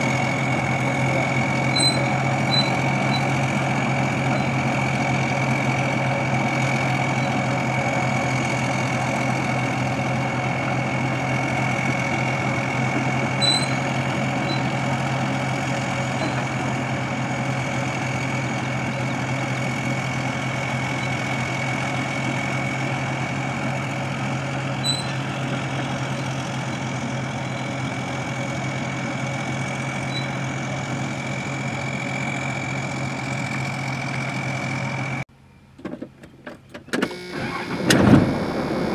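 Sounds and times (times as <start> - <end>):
bulldozer diesel engine running: 0.0 - 38.9.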